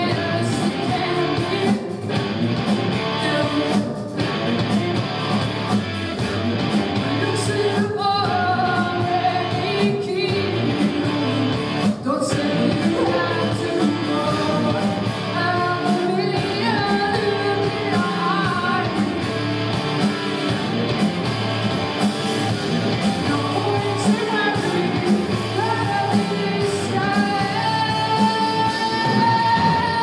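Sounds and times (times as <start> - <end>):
woman singing: 0.0 - 2.2, 3.1 - 4.4, 7.0 - 19.3, 23.2 - 30.0
live rock band playing: 0.0 - 30.0.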